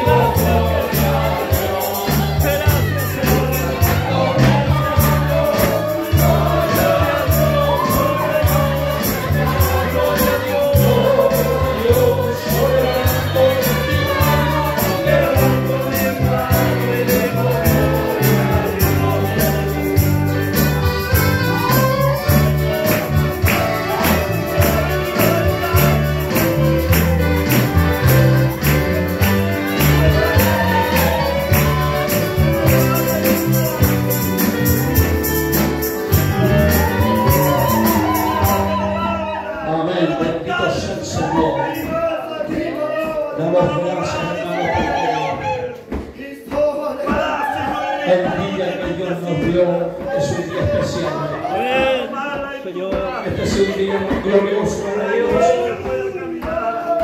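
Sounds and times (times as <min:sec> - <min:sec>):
singing over a band: 0:00.0 - 0:27.3, 0:29.1 - 0:34.7, 0:36.0 - 0:57.0
bass line: 0:00.0 - 0:40.4
percussion beat: 0:00.0 - 0:57.0.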